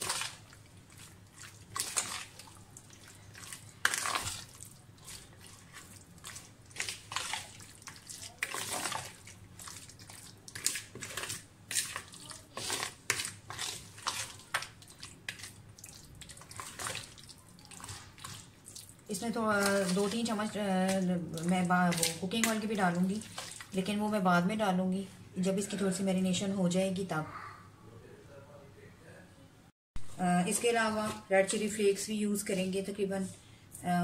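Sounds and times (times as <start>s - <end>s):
hand squelching meat in marinade: 0.0s - 23.8s.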